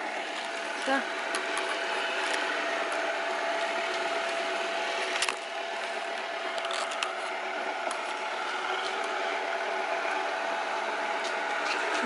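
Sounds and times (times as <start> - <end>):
robot vacuum motor whir: 0.0 - 12.0.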